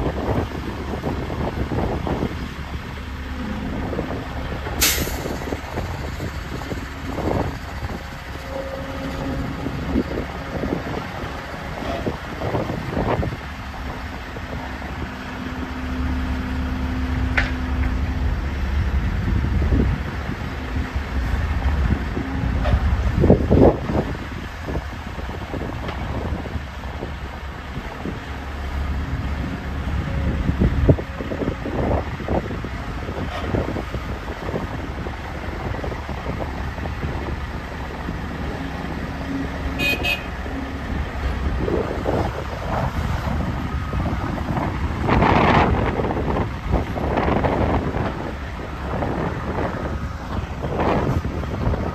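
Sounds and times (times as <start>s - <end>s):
excavator diesel engine rumbling: 0.0s - 51.9s
wind on microphone: 0.0s - 51.9s
low hum: 2.0s - 12.4s
metal clank: 3.5s - 7.4s.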